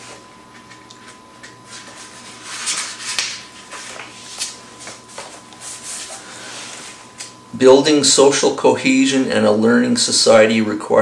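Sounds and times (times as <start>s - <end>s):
book pages rustling: 0.0s - 7.3s.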